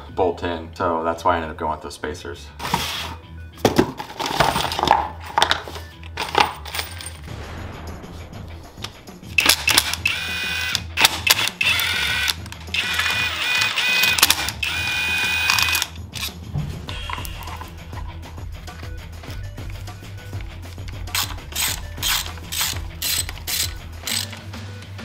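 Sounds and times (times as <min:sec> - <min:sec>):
power driver whining: 0:09.4 - 0:18.0, 0:20.9 - 0:24.5.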